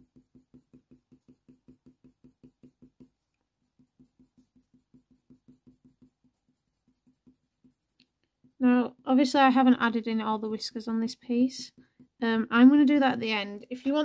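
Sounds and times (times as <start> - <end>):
pencil strokes on paper: 0.0 - 14.0.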